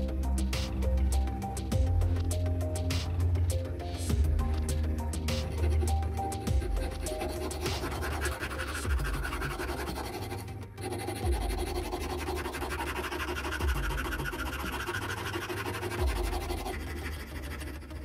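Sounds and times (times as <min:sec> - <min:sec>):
hand file rasping on metal: 0:05.3 - 0:18.0.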